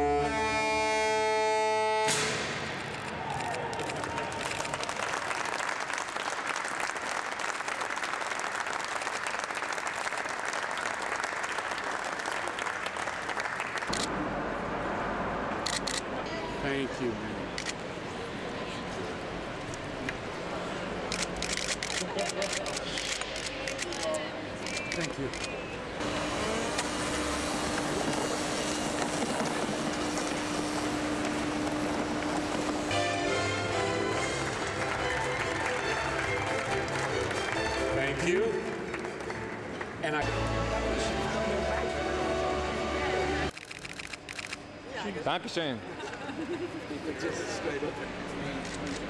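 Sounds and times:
crowd applauding: 2.9s - 14.0s, 29.2s - 40.3s
constant low hum: 17.4s - 38.1s
machine rumble and hiss: 24.6s - 35.3s.

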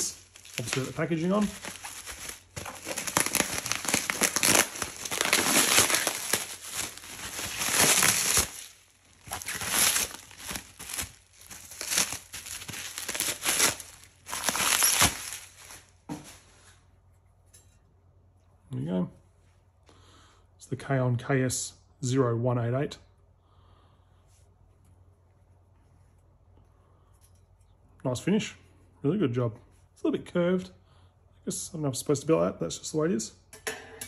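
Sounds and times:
bubble wrap crinkling: 0.0s - 16.6s.

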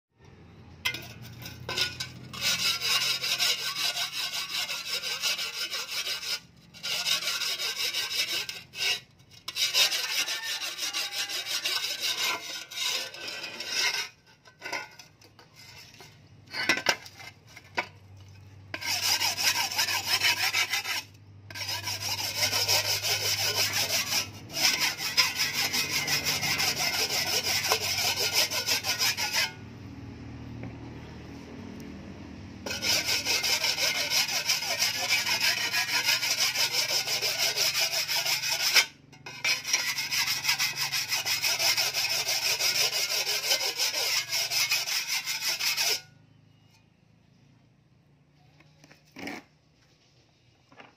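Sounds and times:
sharpening stone scraping steel blade: 0.8s - 17.9s, 18.7s - 29.6s, 32.6s - 46.9s.

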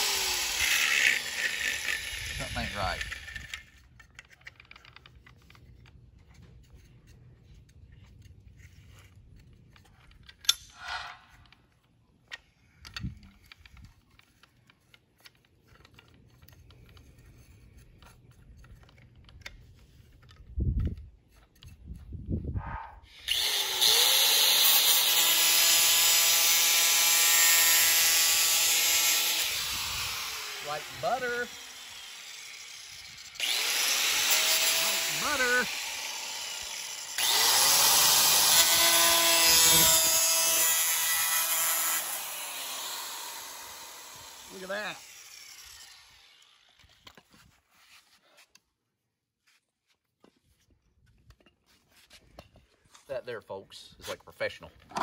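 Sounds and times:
angle grinder whine: 0.0s - 3.6s, 23.2s - 47.0s
grinder disc cutting plastic pipe: 0.0s - 5.6s, 23.1s - 47.3s.

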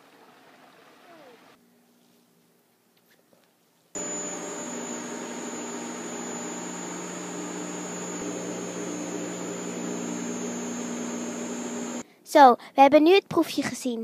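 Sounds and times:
centrifuge humming with high whine: 4.0s - 12.0s.

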